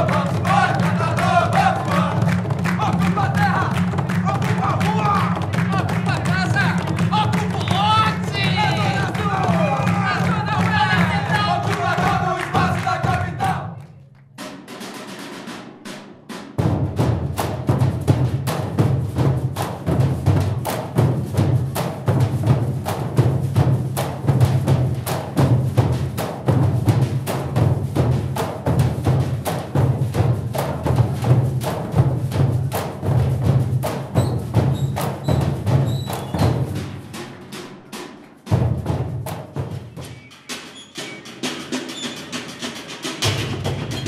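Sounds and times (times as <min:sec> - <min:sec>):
sticks beating buckets and cans: 0:00.0 - 0:13.6, 0:17.4 - 0:38.6
barrel drumming: 0:00.0 - 0:13.7, 0:14.4 - 0:44.0
group chanting: 0:00.0 - 0:14.0.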